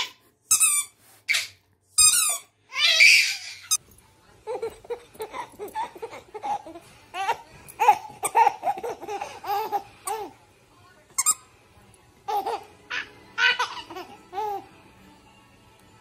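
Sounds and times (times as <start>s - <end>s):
baby giggling: 4.5s - 10.3s, 12.3s - 14.6s.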